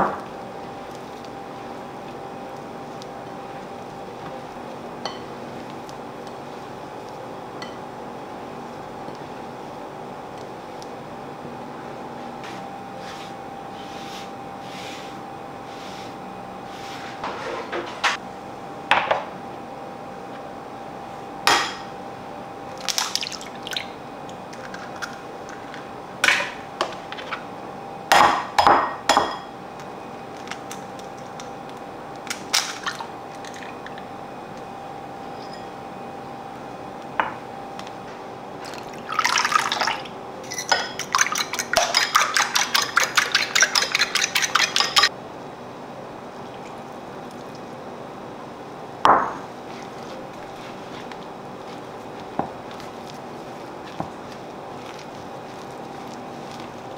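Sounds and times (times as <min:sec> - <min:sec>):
fork beating eggs in bowl: 0:40.4 - 0:45.1, 0:49.7 - 0:56.9.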